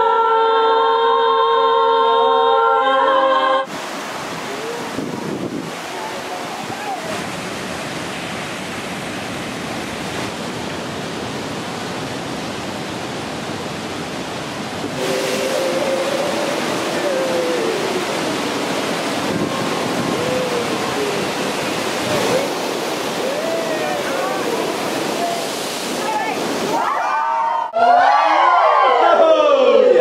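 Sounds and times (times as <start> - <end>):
voices singing long notes: 0.0 - 3.8, 14.9 - 25.6
ocean surf rushing: 2.7 - 30.0.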